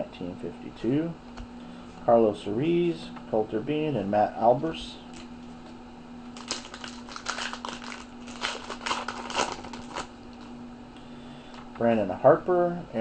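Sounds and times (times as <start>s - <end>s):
low electrical hum: 0.0s - 13.0s
card pack wrapper crinkling: 6.4s - 10.5s.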